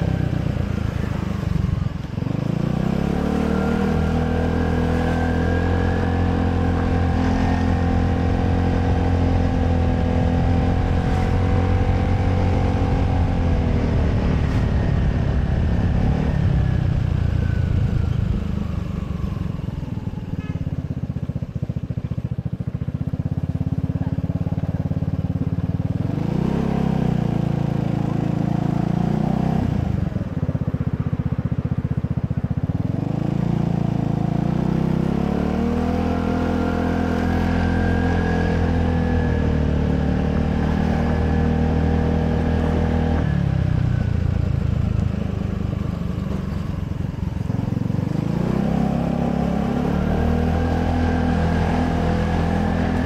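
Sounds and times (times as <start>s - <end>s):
scooter engine revving: 21.9s - 53.0s.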